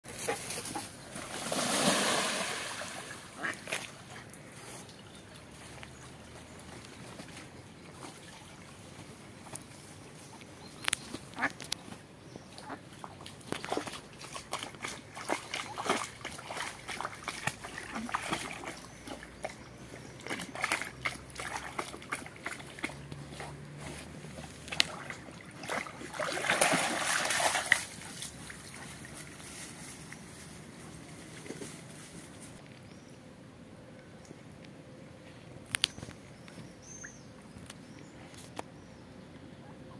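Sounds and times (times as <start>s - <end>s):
ducks splashing in water: 0.2s - 6.2s, 12.6s - 29.2s.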